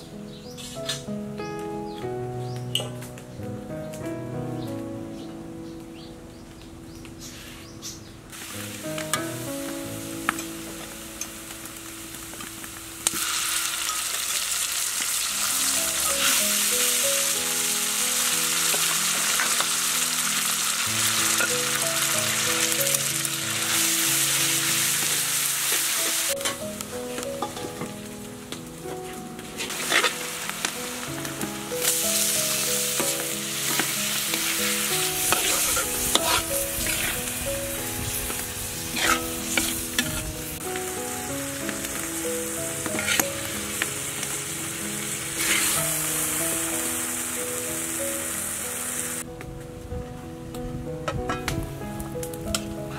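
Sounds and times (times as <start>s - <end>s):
soft background music: 0.0s - 52.9s
food sizzling in hot oil: 8.3s - 49.2s
metal spatula stirring in wok: 29.6s - 30.2s, 33.0s - 37.4s, 38.8s - 40.3s, 42.8s - 43.3s.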